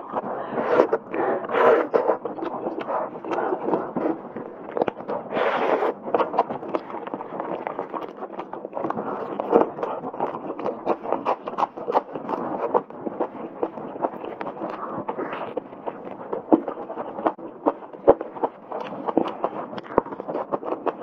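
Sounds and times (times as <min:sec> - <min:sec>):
chewing and gnawing meat: 0:00.0 - 0:21.0.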